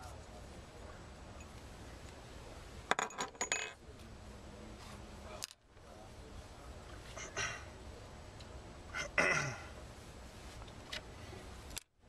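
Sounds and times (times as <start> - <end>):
metal plunger clattering on table: 2.9 - 3.8.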